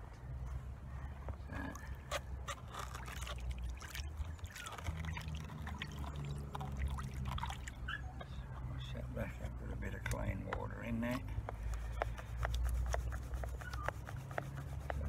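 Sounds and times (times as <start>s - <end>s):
low steady hum: 0.0s - 15.0s
water sloshing in a pan: 2.8s - 7.9s.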